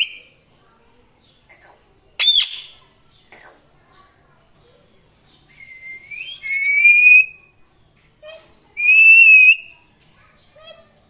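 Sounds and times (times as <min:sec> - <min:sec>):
parrot calling: 0:02.2 - 0:03.4, 0:06.2 - 0:07.4, 0:08.8 - 0:09.8
parrot whistle: 0:05.6 - 0:07.4, 0:08.8 - 0:09.7.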